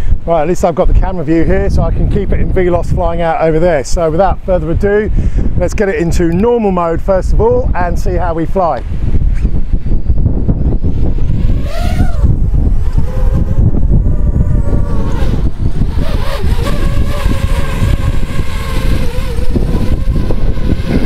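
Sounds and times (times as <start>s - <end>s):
wind rumble on microphone: 0.0s - 21.0s
drone propellers whining: 10.7s - 21.0s.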